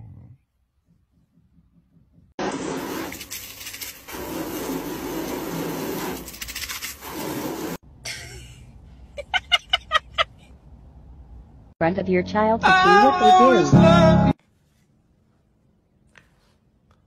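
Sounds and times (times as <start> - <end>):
water spraying from hose nozzle: 2.4 - 7.8.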